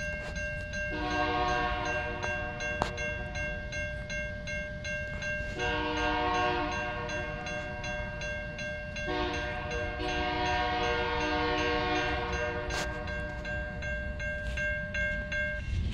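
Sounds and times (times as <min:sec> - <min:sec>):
crossing bell ringing: 0:00.0 - 0:15.9
locomotive horn: 0:00.9 - 0:02.3, 0:05.5 - 0:07.4, 0:09.1 - 0:13.1.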